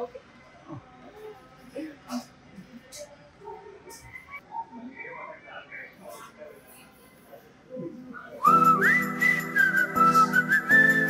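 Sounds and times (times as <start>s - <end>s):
held chords: 8.4s - 11.0s
whistled tune: 8.4s - 11.0s.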